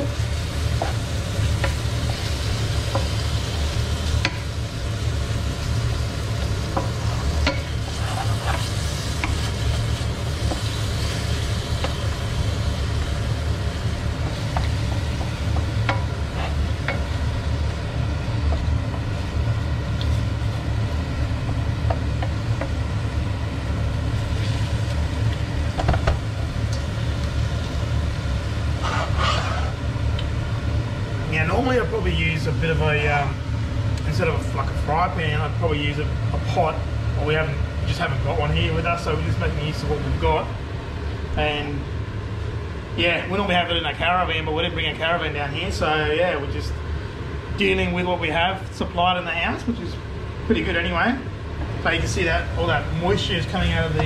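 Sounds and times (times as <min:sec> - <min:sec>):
food sizzling: 0:00.0 - 0:43.6
steady low hum: 0:00.0 - 0:54.0
spatula scraping a frying pan: 0:06.8 - 0:11.2, 0:16.0 - 0:17.0, 0:28.8 - 0:29.8.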